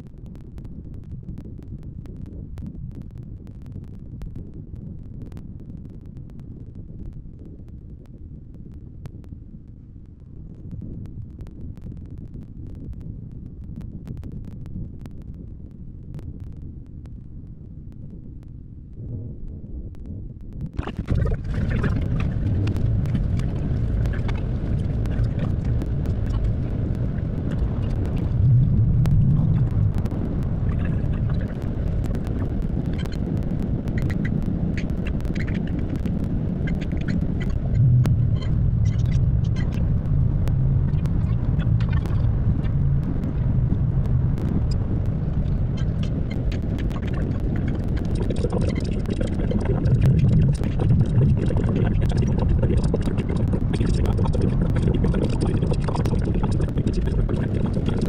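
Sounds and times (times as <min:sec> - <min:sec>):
light ticks: 0:21.7 - 0:43.4.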